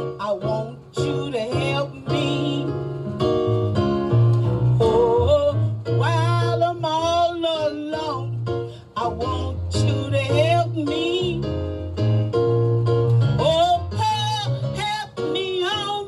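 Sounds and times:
woman singing with vibrato: 0.0s - 2.8s, 4.8s - 11.5s, 13.4s - 16.0s
instrumental accompaniment: 0.0s - 16.0s.

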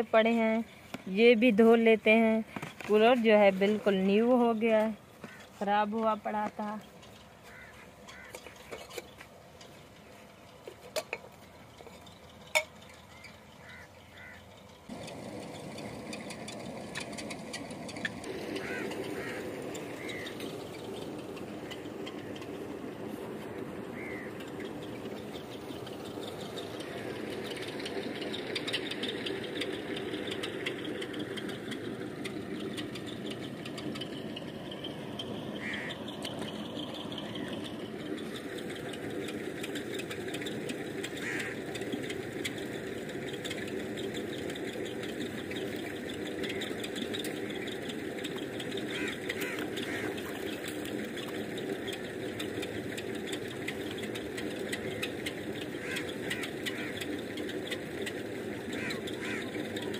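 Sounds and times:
engine running steadily: 0.0s - 59.9s.

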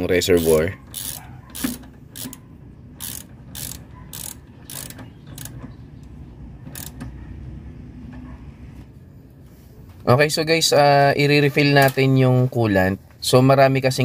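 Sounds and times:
ratchet wrench clicking: 0.2s - 2.4s, 3.0s - 5.6s, 6.7s - 7.0s.

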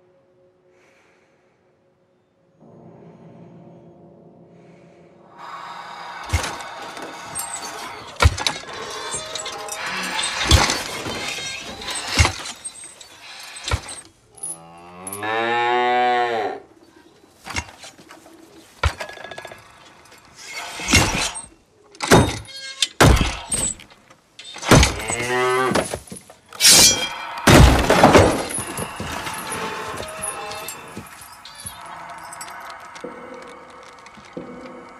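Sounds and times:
sharp cracks and clattering knocks: 20.9s - 31.8s.

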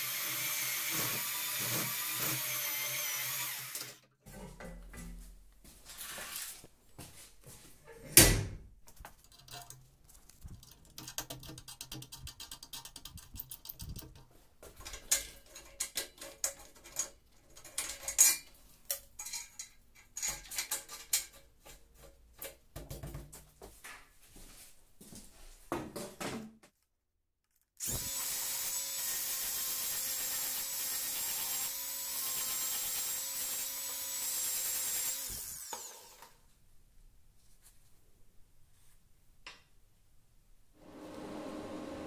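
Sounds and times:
metal tools clanking and knocking: 13.7s - 22.6s.

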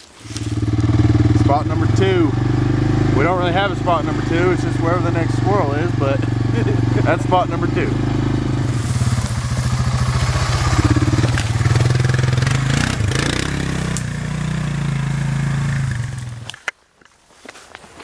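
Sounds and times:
vehicle driving through brush: 0.0s - 16.7s
quad bike engine running: 0.2s - 16.6s.

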